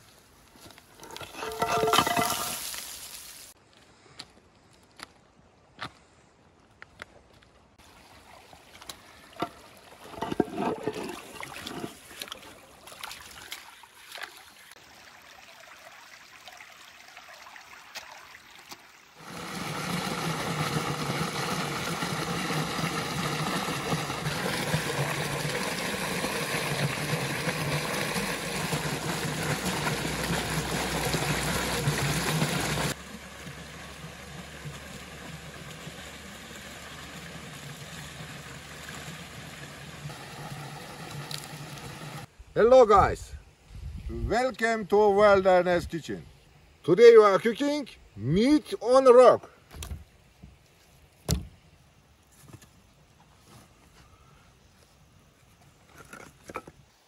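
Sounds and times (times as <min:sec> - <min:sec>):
stream water splashing: 0:00.9 - 0:03.6, 0:07.8 - 0:42.3
fountain water rushing: 0:19.1 - 0:42.3.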